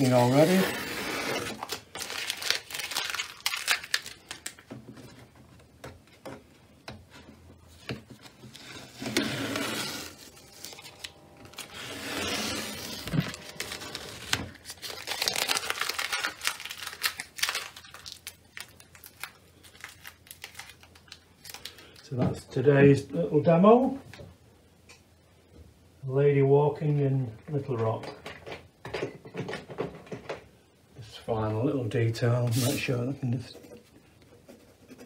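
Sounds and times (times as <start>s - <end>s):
tape and paper rustling: 0.0s - 5.3s, 7.1s - 22.0s
masking tape ripping off paper: 8.5s - 21.7s.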